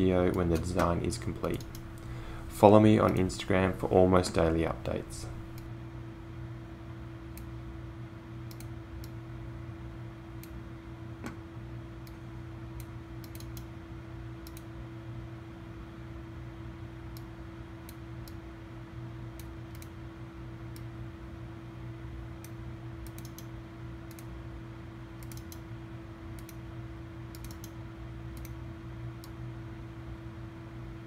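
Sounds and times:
steady background hum: 0:00.0 - 0:31.0
computer mouse clicks: 0:00.3 - 0:02.1, 0:08.5 - 0:09.2, 0:12.8 - 0:13.7, 0:14.4 - 0:14.7, 0:19.4 - 0:20.0, 0:22.4 - 0:24.3, 0:25.2 - 0:25.6, 0:26.4 - 0:26.6, 0:27.3 - 0:28.6.

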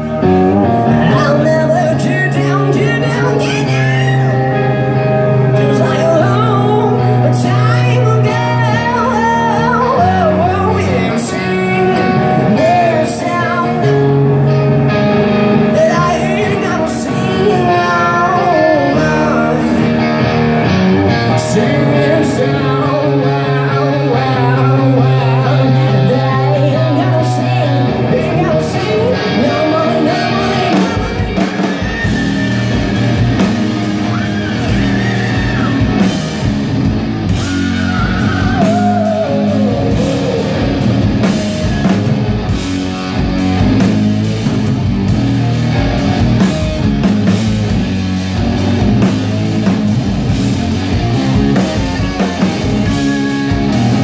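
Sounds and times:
person singing: 0:00.0 - 0:14.6, 0:15.6 - 0:20.2, 0:21.1 - 0:36.5, 0:37.3 - 0:42.2
drums: 0:00.0 - 0:54.0
electric guitar: 0:00.0 - 0:54.0.

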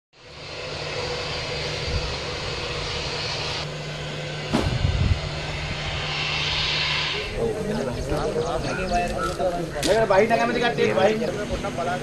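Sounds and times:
aircraft engine drone: 0:00.2 - 0:12.0
sharp knock and low thumps: 0:04.5 - 0:05.0.

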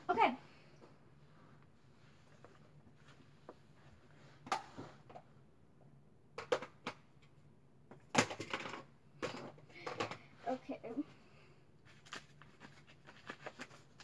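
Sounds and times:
small objects clattering on desk: 0:08.0 - 0:10.2.

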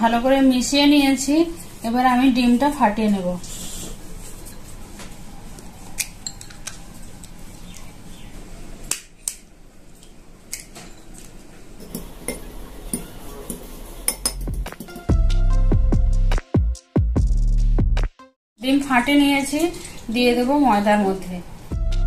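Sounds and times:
fork tapping egg shell: 0:11.8 - 0:13.1
metal spoon clinking on glass: 0:11.8 - 0:15.0
loud background music: 0:12.8 - 0:18.2, 0:21.7 - 0:22.0.

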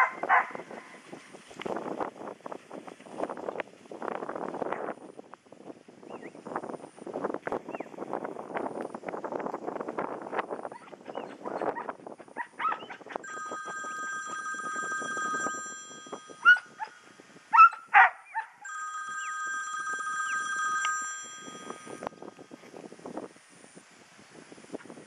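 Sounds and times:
dog barking: 0:00.0 - 0:00.9, 0:11.2 - 0:13.0, 0:17.5 - 0:18.6
wind rustle on microphone: 0:00.0 - 0:18.1, 0:19.9 - 0:25.0
high ringing tone: 0:13.2 - 0:16.8, 0:18.6 - 0:22.8.

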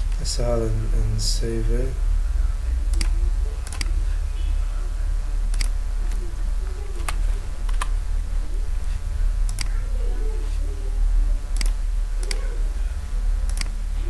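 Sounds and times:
low electrical hum: 0:00.0 - 0:14.0
computer mouse clicks: 0:02.9 - 0:04.0, 0:09.5 - 0:09.8, 0:11.6 - 0:12.4, 0:13.4 - 0:13.8.

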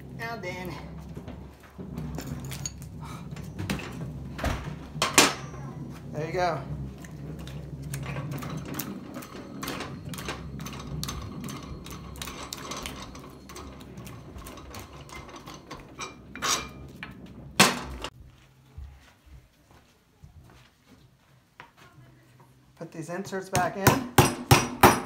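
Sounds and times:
metal clicking and rattling: 0:06.9 - 0:18.1
loud metal knocks: 0:08.0 - 0:18.1, 0:23.6 - 0:25.0.

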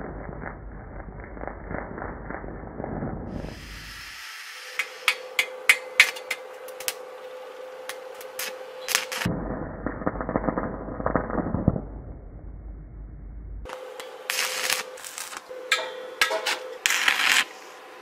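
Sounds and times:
welding arc snaps: 0:00.0 - 0:07.0, 0:07.9 - 0:12.0, 0:13.7 - 0:17.7
welding arc crackling: 0:00.0 - 0:07.1, 0:07.8 - 0:12.6, 0:13.7 - 0:17.8
steady hum: 0:00.0 - 0:18.0.

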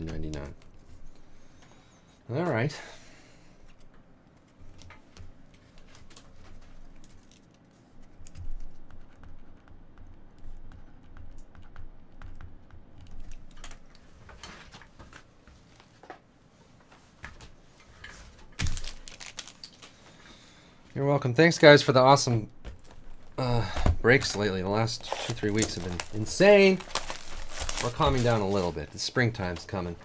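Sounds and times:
typing on a computer keyboard: 0:08.2 - 0:14.0.

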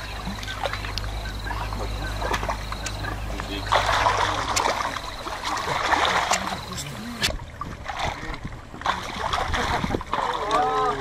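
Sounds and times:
low steady hum: 0:00.0 - 0:11.0
river water splashing and lapping: 0:00.0 - 0:11.0
sharp clicks: 0:02.3 - 0:03.5.

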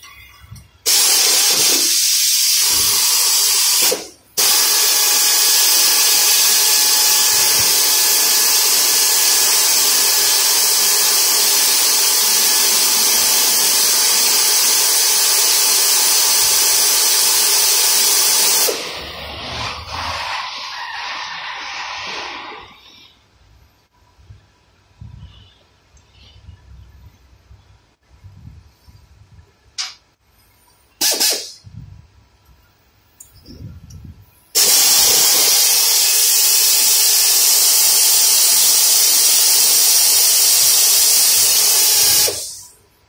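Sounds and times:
compressed air hissing: 0:00.8 - 0:23.2, 0:31.0 - 0:31.6, 0:34.6 - 0:42.8.

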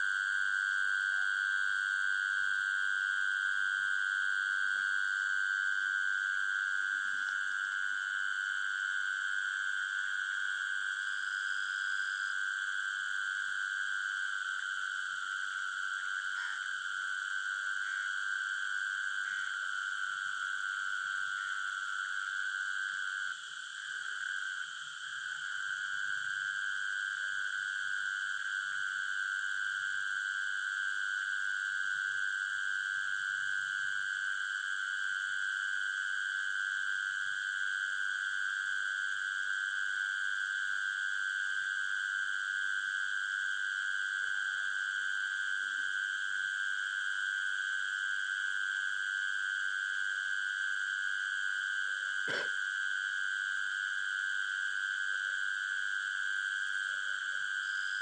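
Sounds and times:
night insects trilling: 0:00.0 - 0:58.0.

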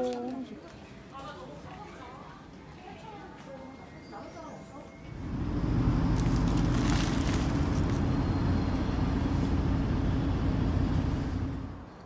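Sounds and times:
car road and engine rumble: 0:05.1 - 0:12.0.

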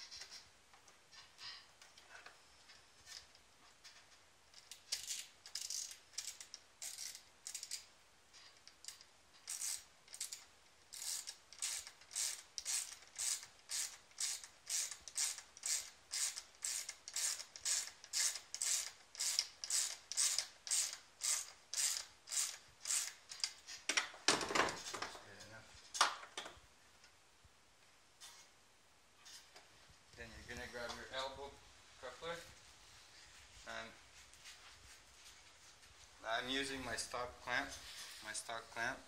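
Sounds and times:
hand ratchet clicking: 0:04.6 - 0:07.9, 0:08.6 - 0:23.6.

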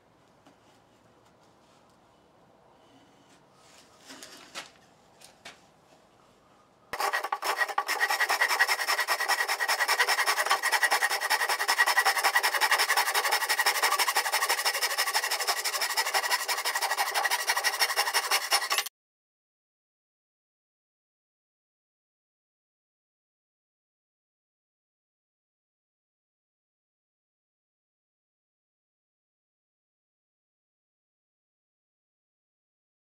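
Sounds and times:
hand saw rasping through wood: 0:07.0 - 0:18.9.

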